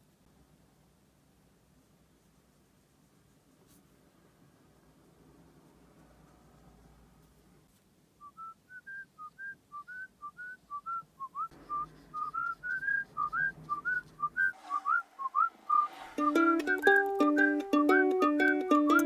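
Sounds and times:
person whistling a tune: 0:08.2 - 0:19.0
background music: 0:14.6 - 0:19.0.

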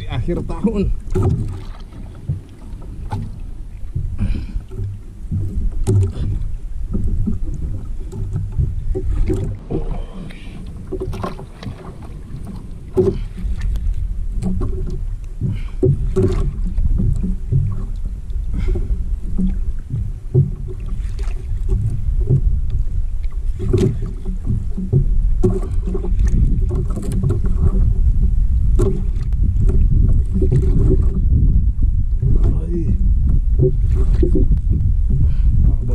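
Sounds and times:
wind and water rumble: 0:00.0 - 0:35.9
knocks and clicks: 0:04.7 - 0:09.6.

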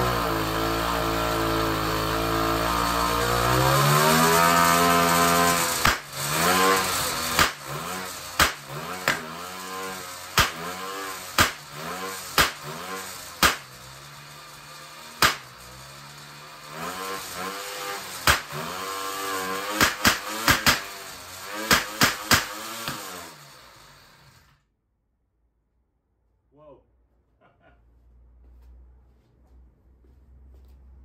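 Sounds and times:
two-stroke engine revving: 0:00.0 - 0:24.5
engine backfire pops: 0:05.8 - 0:06.2, 0:07.2 - 0:07.7, 0:08.4 - 0:09.3, 0:10.4 - 0:10.7, 0:11.4 - 0:12.7, 0:13.4 - 0:13.8, 0:15.2 - 0:15.6, 0:18.2 - 0:18.6.

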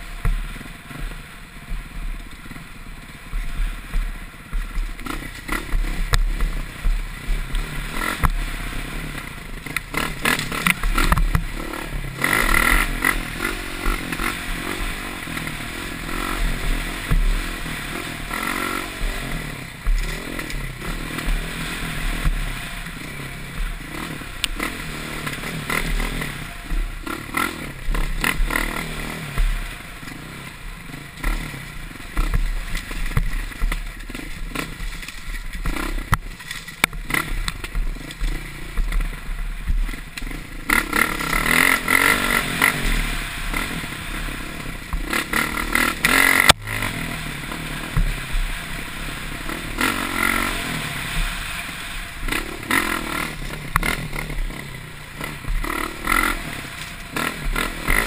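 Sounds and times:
bike clattering over bumps: 0:00.0 - 0:44.0
dirt bike engine revving: 0:00.0 - 0:58.0.

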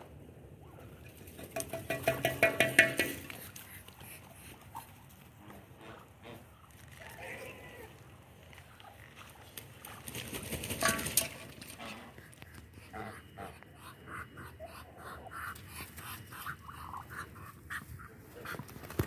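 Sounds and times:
ducks panting puffs: 0:03.1 - 0:06.9, 0:11.6 - 0:19.0.

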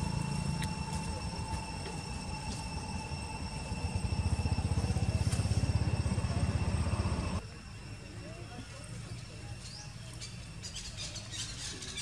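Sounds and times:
pulsing engine rumble: 0:00.0 - 0:07.4.

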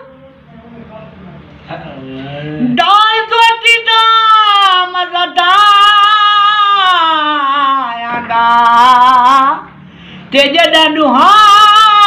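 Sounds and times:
elderly man singing unaccompanied: 0:02.8 - 0:09.6, 0:10.4 - 0:12.0
man taking a breath: 0:09.8 - 0:10.3.

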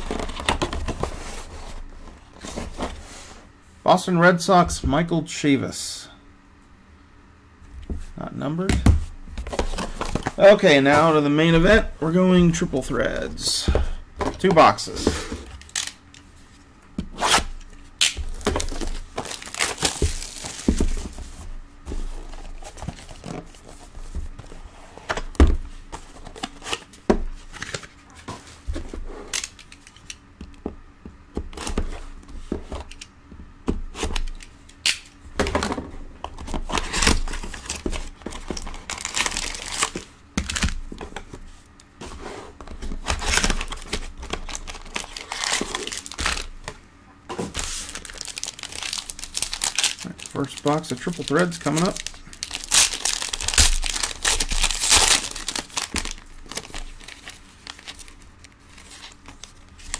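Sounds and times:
box cutter slitting plastic wrap: 0:17.1 - 0:20.7, 0:47.6 - 0:58.0
plastic film tearing and crinkling: 0:17.1 - 0:21.0, 0:36.7 - 0:40.8, 0:43.1 - 0:46.6, 0:47.5 - 0:59.9.

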